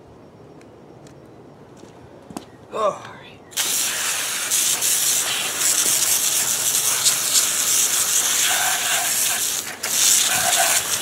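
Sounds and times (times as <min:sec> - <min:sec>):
hose spraying water: 0:03.6 - 0:11.0.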